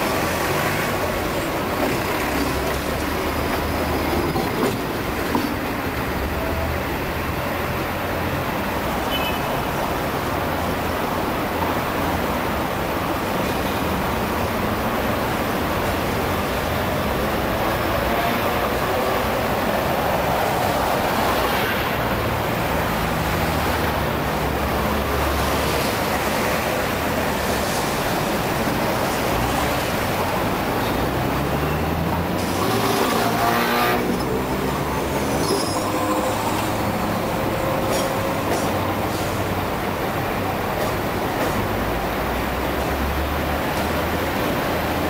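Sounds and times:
street traffic: 0:00.0 - 0:45.0
vehicle accelerating with motor whine: 0:32.2 - 0:34.6.

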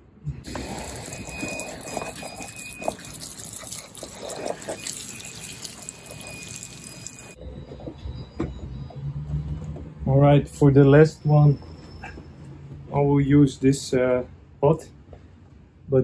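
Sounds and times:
water trickling and dripping: 0:00.6 - 0:07.4.

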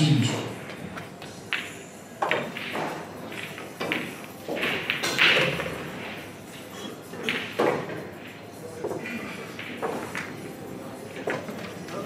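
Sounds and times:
pool balls knocking together: 0:01.0 - 0:10.4.

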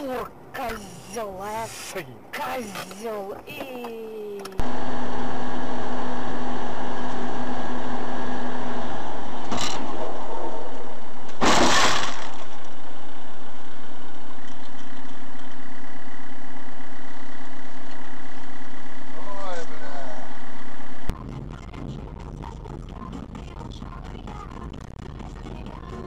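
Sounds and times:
car road and engine noise: 0:00.0 - 0:26.0
loud impact: 0:11.4 - 0:12.6.

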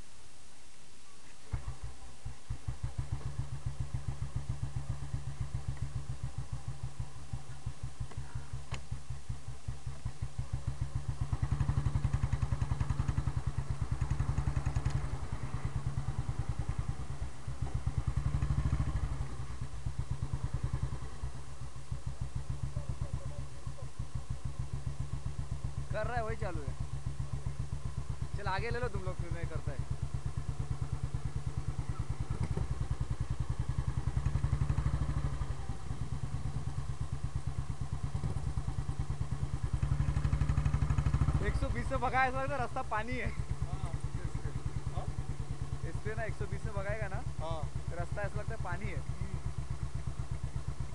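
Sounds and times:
motorcycle engine idling: 0:01.3 - 0:50.9
motorcycle engine starting: 0:01.4 - 0:50.9
engine revving: 0:10.4 - 0:21.4, 0:24.2 - 0:50.9.

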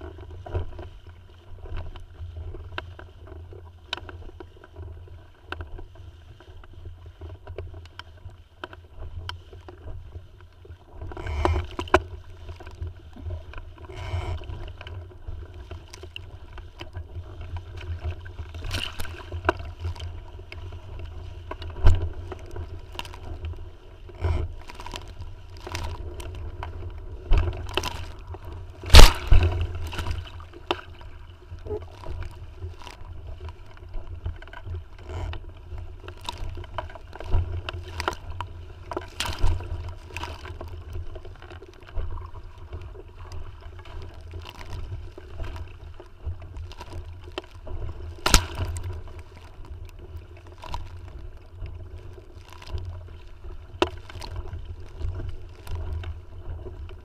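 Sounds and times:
water splashing against hull: 0:00.0 - 0:57.0
wind rumble on microphone: 0:00.0 - 0:57.0
sharp slaps: 0:28.9 - 0:29.5.

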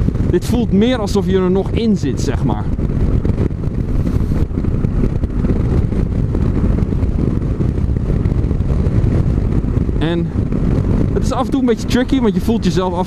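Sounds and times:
motorcycle engine running: 0:00.0 - 0:13.0
wind noise: 0:00.0 - 0:13.0.

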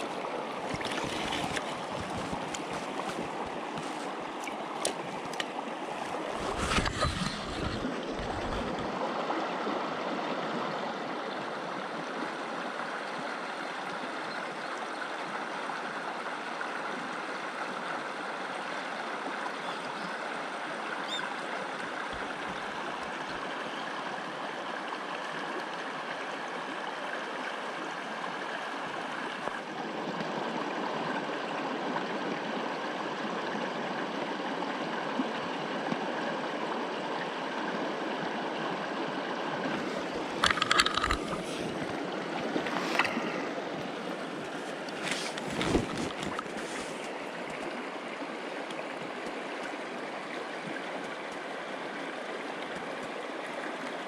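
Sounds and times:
stream running over rocks: 0:00.0 - 0:54.0.

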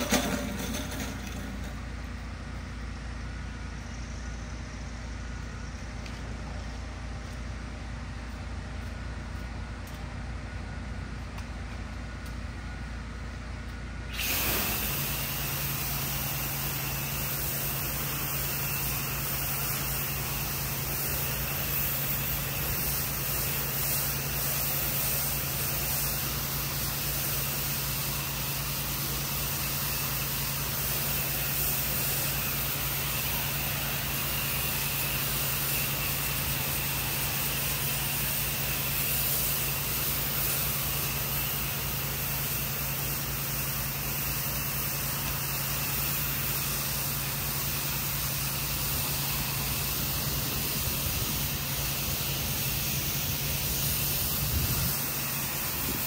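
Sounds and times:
pressure washer engine drone: 0:00.0 - 0:56.0
water jet hissing on concrete: 0:14.1 - 0:56.0.

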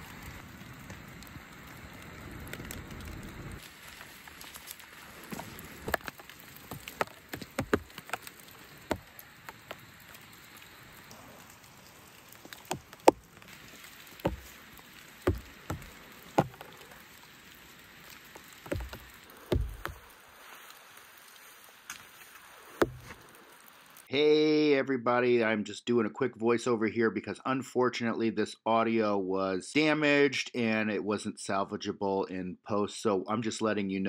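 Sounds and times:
rain hissing: 0:00.0 - 0:24.1
heavy raindrops tapping: 0:02.5 - 0:20.5, 0:22.7 - 0:23.6.

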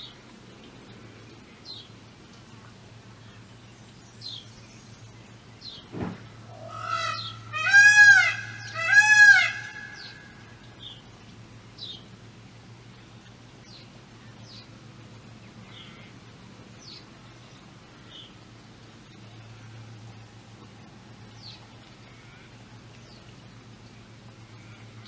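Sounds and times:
large bird calling loudly: 0:06.5 - 0:10.5.

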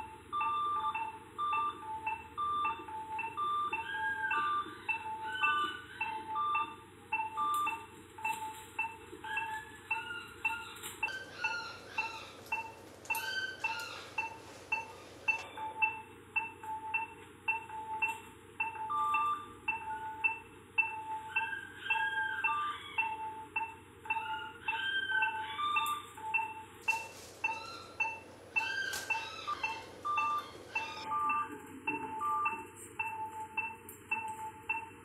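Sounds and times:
marimba-like mallet music: 0:15.3 - 0:34.9.

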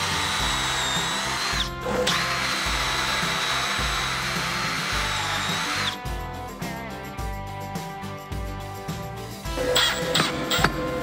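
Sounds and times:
drill bit cutting wood: 0:00.0 - 0:06.0
drill whining: 0:00.0 - 0:06.1, 0:09.5 - 0:11.0
background music with beat: 0:00.0 - 0:11.0.

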